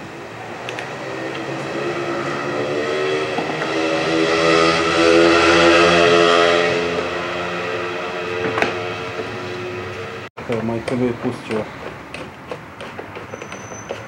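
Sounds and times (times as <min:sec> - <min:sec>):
engine running: 0:00.0 - 0:10.3.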